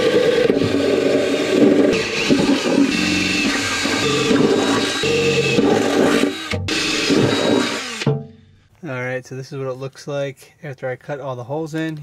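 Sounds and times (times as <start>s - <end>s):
cordless drill cutting sheet steel: 0.0s - 8.1s.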